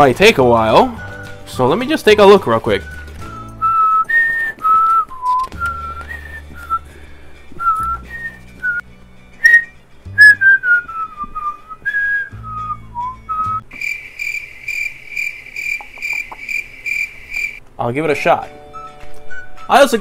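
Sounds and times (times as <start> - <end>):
man whistling a tune: 2.8 - 7.0, 7.6 - 8.8, 9.4 - 13.7, 18.7 - 19.8
high evenly spaced chirps: 13.8 - 17.6.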